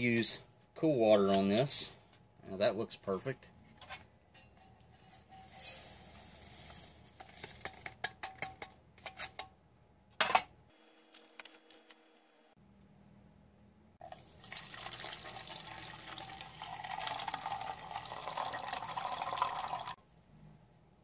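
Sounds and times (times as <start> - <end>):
powder trickling into metal cup: 14.0 - 20.0
water pouring into cup: 14.0 - 20.0.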